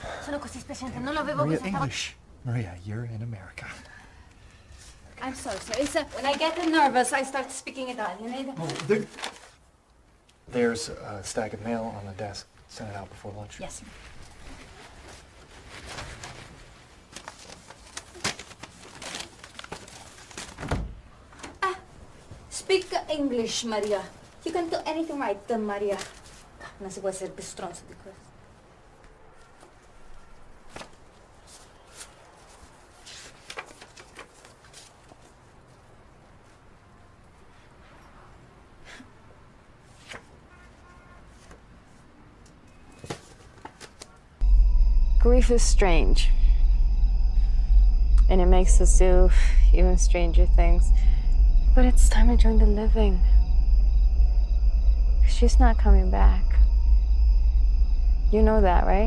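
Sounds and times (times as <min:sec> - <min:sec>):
paper rustling and tapping: 0:33.2 - 0:35.2.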